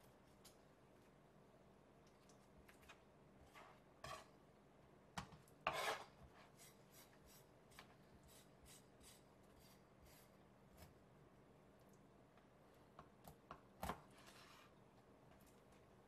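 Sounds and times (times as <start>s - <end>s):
knife scraping fish on board: 5.6s - 6.7s.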